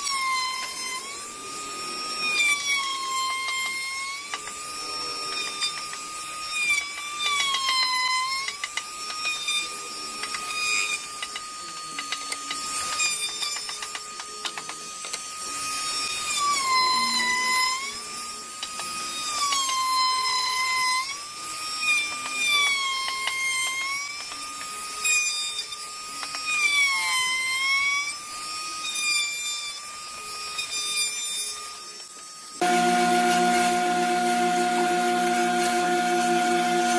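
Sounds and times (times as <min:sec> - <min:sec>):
electric wood router whining: 0:00.0 - 0:36.9.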